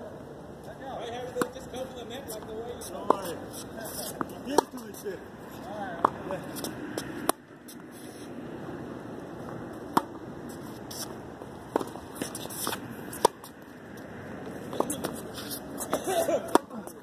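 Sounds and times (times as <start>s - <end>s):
tennis balls struck by rackets: 1.2s - 5.1s, 5.9s - 7.9s, 9.3s - 17.0s.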